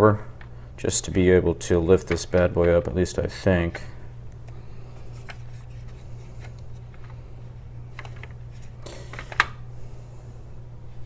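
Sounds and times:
steady low hum: 0:00.0 - 0:11.0
hard plastic clicking and rustling: 0:00.4 - 0:03.9, 0:07.9 - 0:09.6.

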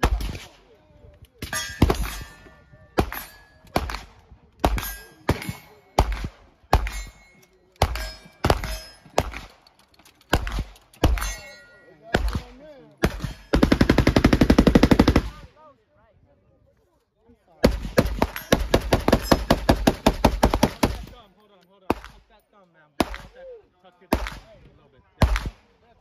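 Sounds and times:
gunshots: 0:00.0 - 0:00.6, 0:01.4 - 0:07.2, 0:07.8 - 0:09.6, 0:10.3 - 0:11.5, 0:12.1 - 0:15.5, 0:17.6 - 0:21.2, 0:21.9 - 0:22.3, 0:23.0 - 0:23.4, 0:24.1 - 0:25.7
ringing steel targets: 0:01.4 - 0:04.0, 0:04.7 - 0:09.6, 0:10.4 - 0:12.4, 0:13.0 - 0:13.7, 0:18.2 - 0:19.7
automatic gunfire burst: 0:13.0 - 0:15.3.

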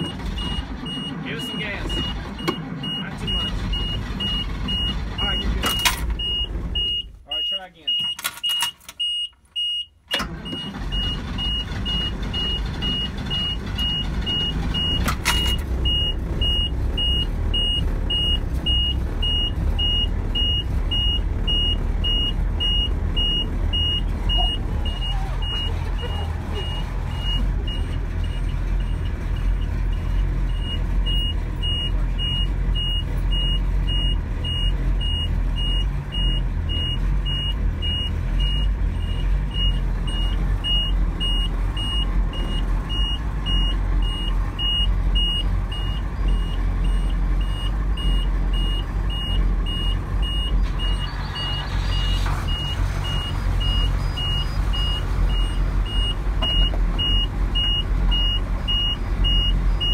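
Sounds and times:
diesel engine idling: 0:00.0 - 0:08.0, 0:09.6 - 0:59.9.

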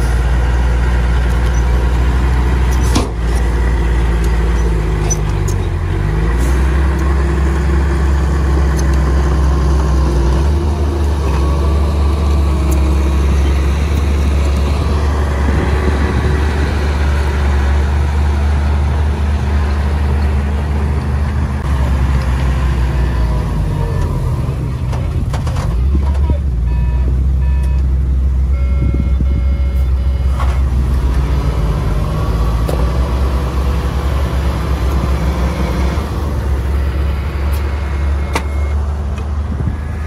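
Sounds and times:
heavy machinery diesel engine: 0:00.0 - 0:40.0.

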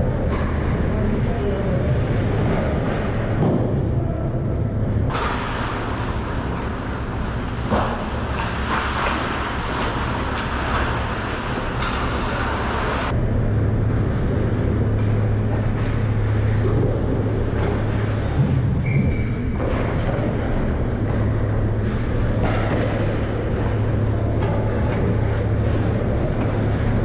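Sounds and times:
steady low hum: 0:00.0 - 0:27.0
skates scraping on ice: 0:05.0 - 0:13.1, 0:13.9 - 0:27.0.

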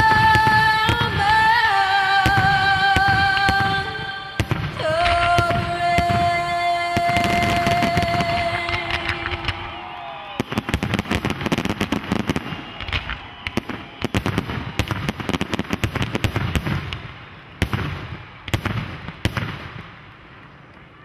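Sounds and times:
loud firework bangs: 0:00.0 - 0:20.3
fireworks popping: 0:00.0 - 0:20.8.

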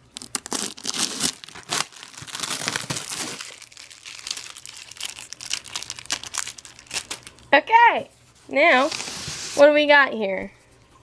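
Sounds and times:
packing tape peeling off: 0:00.0 - 0:07.4
tape crumpled by hand: 0:00.0 - 0:07.5.

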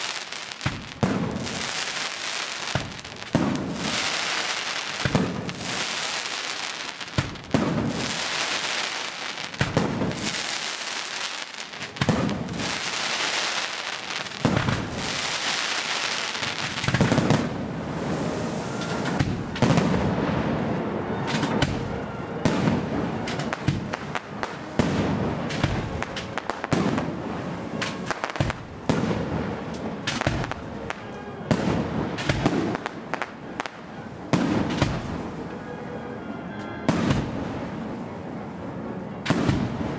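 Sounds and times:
firework shells bursting: 0:00.0 - 0:17.6
firework hissing: 0:00.0 - 0:19.8.

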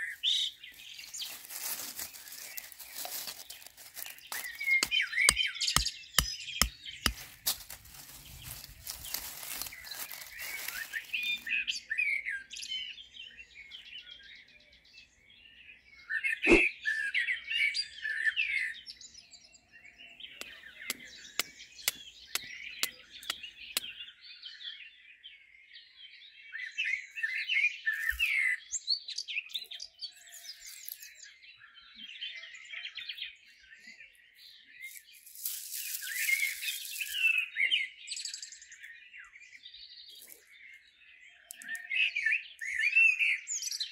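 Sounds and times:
dry grass rustling: 0:00.0 - 0:11.8, 0:34.9 - 0:37.4
songbirds chirping and trilling: 0:00.0 - 0:43.9.

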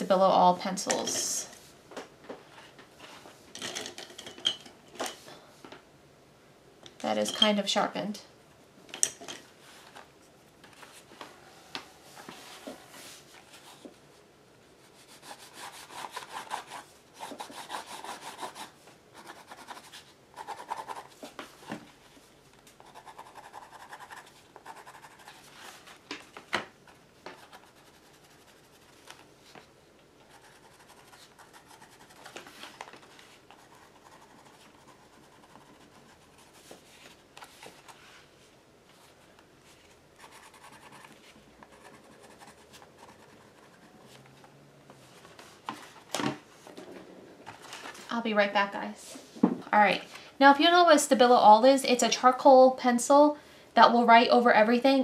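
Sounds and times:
pencil scratching on paper: 0:14.9 - 0:21.2, 0:22.8 - 0:25.5, 0:27.4 - 0:29.0, 0:30.2 - 0:32.4, 0:33.5 - 0:36.7, 0:40.2 - 0:44.2.

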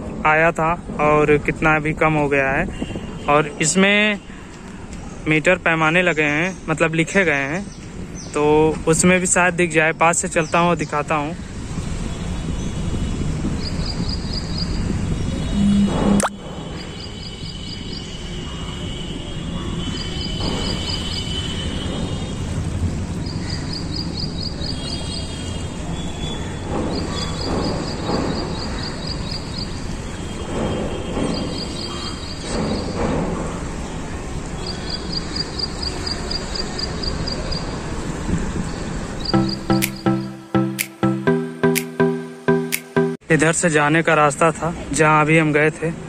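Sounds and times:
high-pitched ticking chirps: 0:15.5 - 0:16.4, 0:39.2 - 0:43.2.

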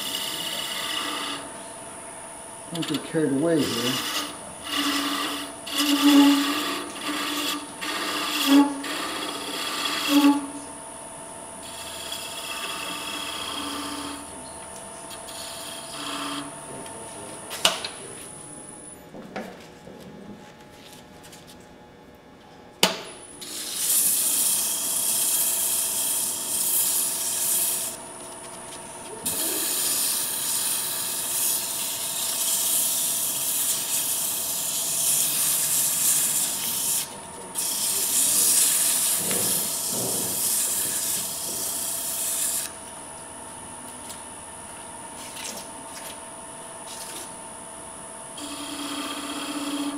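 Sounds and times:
lathe tool cutting wood: 0:00.0 - 0:01.5, 0:02.7 - 0:10.6, 0:11.6 - 0:14.3, 0:15.1 - 0:16.5, 0:23.4 - 0:28.0, 0:29.2 - 0:42.7, 0:48.4 - 0:49.9
sandpaper hissing on spinning wood: 0:02.7 - 0:10.5, 0:23.5 - 0:28.0, 0:29.2 - 0:42.7.

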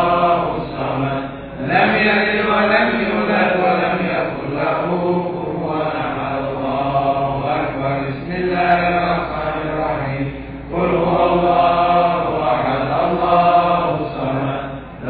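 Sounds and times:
repetitive chanting: 0:00.0 - 0:15.0.

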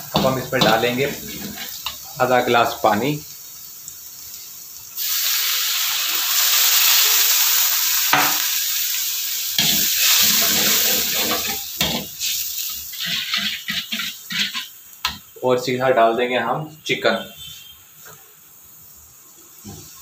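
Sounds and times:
water hissing in hot pan: 0:00.0 - 0:15.9
metal spoon scraping pan: 0:00.1 - 0:02.0, 0:09.6 - 0:12.2, 0:12.9 - 0:14.7.

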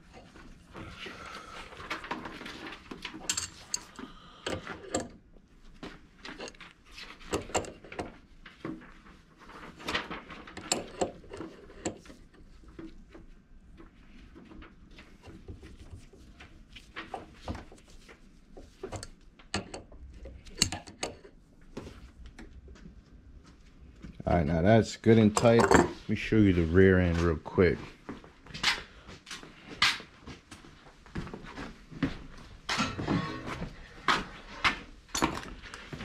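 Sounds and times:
wrench clinking on metal fitting: 0:03.3 - 0:05.1.

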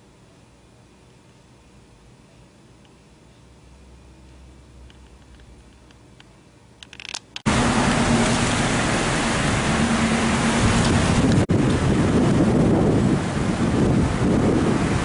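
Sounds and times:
passing street traffic: 0:07.5 - 0:15.0
wind buffeting the microphone: 0:09.4 - 0:15.0.

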